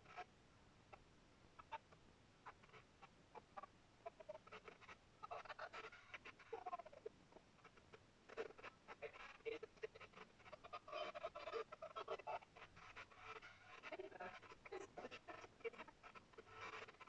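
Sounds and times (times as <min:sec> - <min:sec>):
television crackles: 0:02.5 - 0:17.0.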